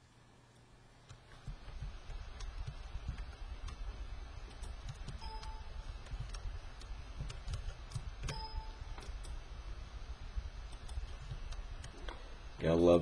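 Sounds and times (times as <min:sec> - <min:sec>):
steady low background hum: 0:00.0 - 0:13.0
computer mouse clicking: 0:01.0 - 0:09.4, 0:10.6 - 0:12.2.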